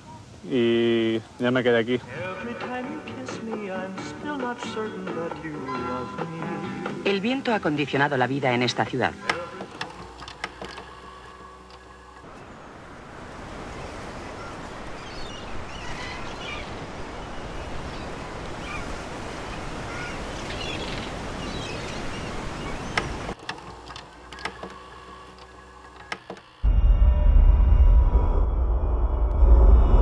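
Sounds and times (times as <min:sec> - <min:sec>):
wind: 0:00.0 - 0:30.0
seabirds calling: 0:01.8 - 0:26.6
surf: 0:12.3 - 0:23.4.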